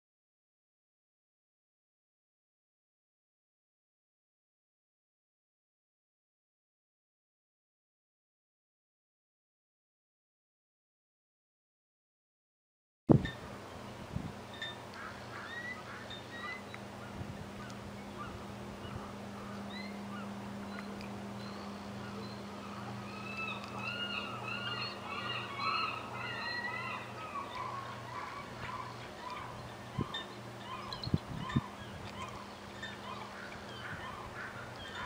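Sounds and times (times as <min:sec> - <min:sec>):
steady low hum: 0:13.1 - 0:35.0
eagle chittering chirps: 0:14.5 - 0:35.0.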